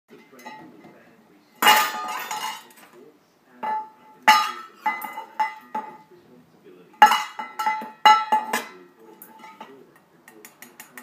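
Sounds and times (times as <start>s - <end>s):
metal bowls clanging: 0.1s - 1.0s, 1.6s - 3.0s, 3.6s - 6.1s, 6.9s - 11.0s.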